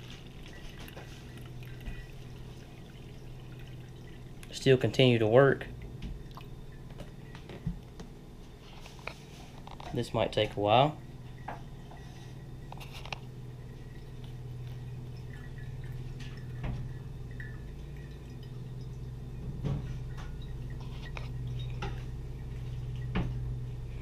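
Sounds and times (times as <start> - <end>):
liquid dripping through filter: 0.0 - 24.0
low hum: 0.0 - 24.0.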